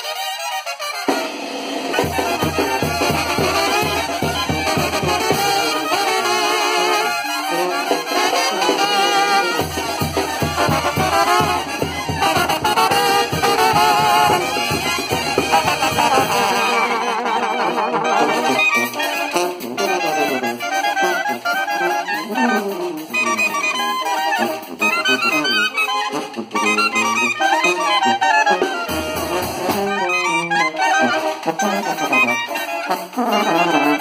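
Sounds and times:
brass band playing: 0:00.0 - 0:34.0
bass drum with cymbal: 0:09.6 - 0:16.4.

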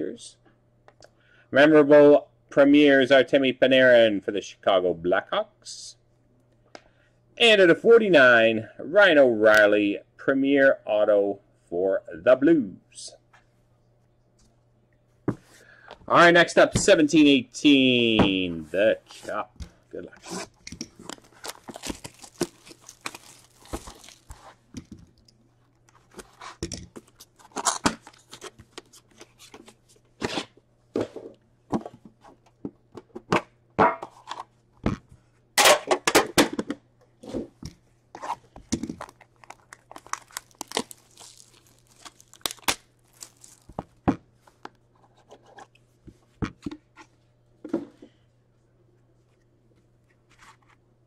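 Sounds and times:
plastic wrap tearing and crinkling: 0:20.3 - 0:24.7, 0:27.3 - 0:28.6, 0:38.9 - 0:44.0
cardboard box handled and opened: 0:21.1 - 0:24.5.

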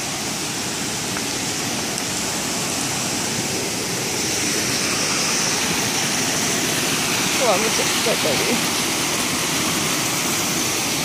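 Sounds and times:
stream cascading over rocks: 0:00.0 - 0:11.0.

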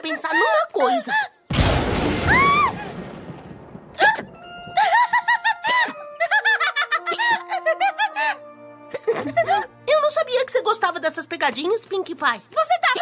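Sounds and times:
crash noise: 0:01.5 - 0:04.4.

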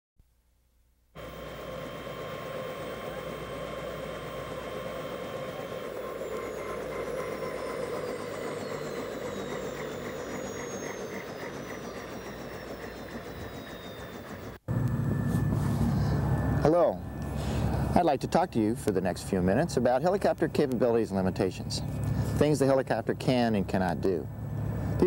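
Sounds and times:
high whines falling in pitch: 0:01.2 - 0:20.2
helicopter engine and rotor: 0:01.2 - 0:25.0.

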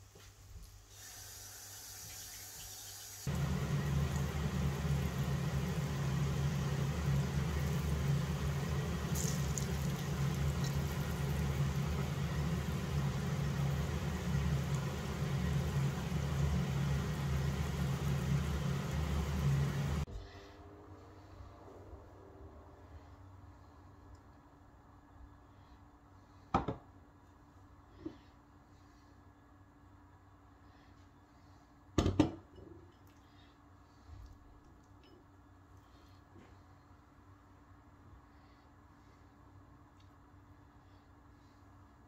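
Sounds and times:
low mechanical hum and whir: 0:00.0 - 0:42.0
oil sizzling in frying pan: 0:00.9 - 0:20.1.

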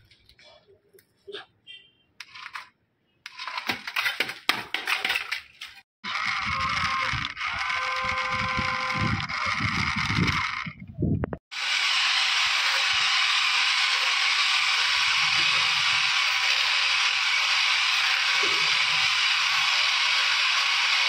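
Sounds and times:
toy car electric motor whirring: 0:06.0 - 0:10.8, 0:11.5 - 0:21.0.

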